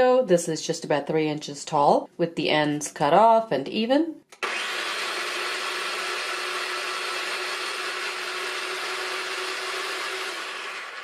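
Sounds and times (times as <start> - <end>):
spiralizer motor running: 4.4 - 11.0.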